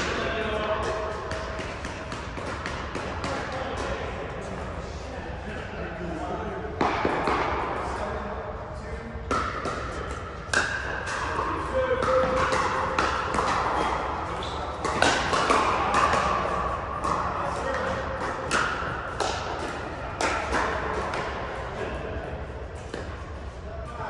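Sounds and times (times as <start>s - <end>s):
paddles hitting plastic ball: 0.0s - 4.0s, 9.3s - 21.5s.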